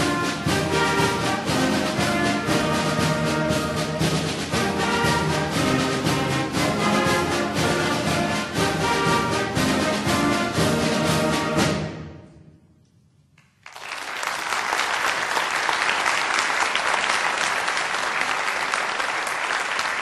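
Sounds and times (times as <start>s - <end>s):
orchestral music: 0.0s - 12.8s
audience applause: 13.6s - 20.0s.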